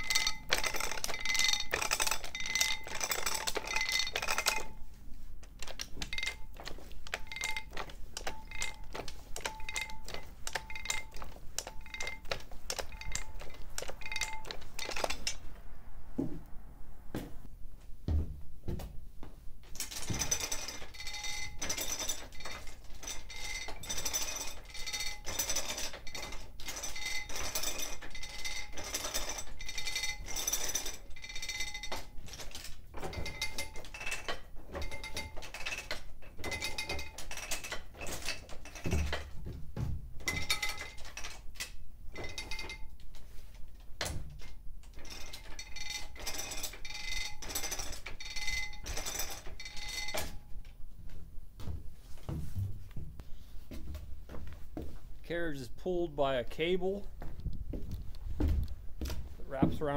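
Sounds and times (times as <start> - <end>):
high metallic ringing: 6.0 - 16.1, 45.0 - 50.6.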